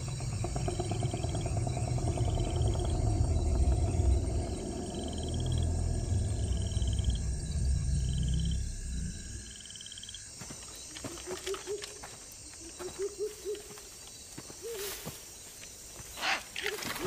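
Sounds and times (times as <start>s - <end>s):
warbling low animal calls: 0.0s - 9.7s.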